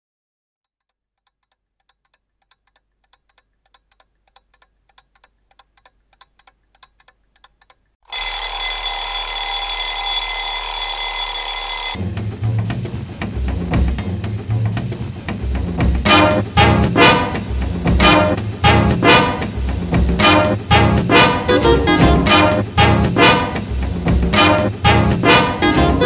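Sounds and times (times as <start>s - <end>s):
clock ticking: 0.8s - 8.9s, 16.1s - 26.0s
alarm clock ringing: 8.1s - 12.0s.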